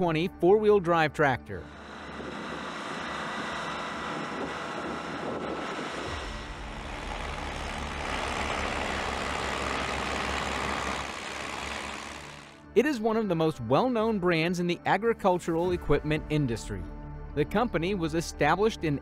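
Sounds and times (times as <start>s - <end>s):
tractor diesel engines under load: 1.5s - 12.6s
engine pulsing throb: 1.6s - 12.7s.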